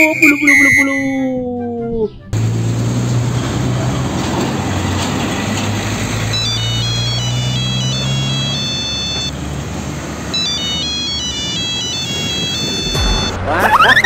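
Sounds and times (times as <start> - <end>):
high electronic chime melody: 0.0 - 1.2, 11.2 - 14.0
diesel trucks driving past: 1.6 - 14.0.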